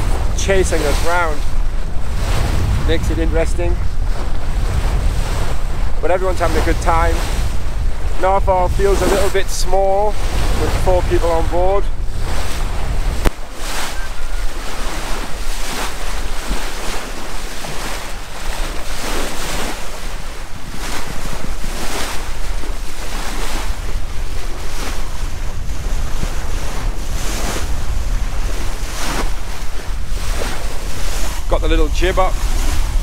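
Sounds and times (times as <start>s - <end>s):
water splashing along hull: 0.0s - 33.0s
wind buffeting microphone: 0.0s - 33.0s.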